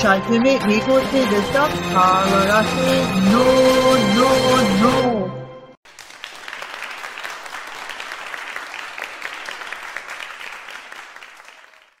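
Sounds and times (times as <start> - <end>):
audience applauding: 5.8 - 12.0.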